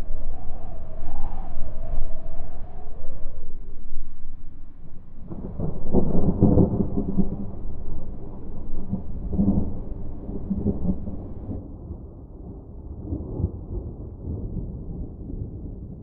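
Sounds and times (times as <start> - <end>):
campfire flames rumbling: 0.0 - 12.1.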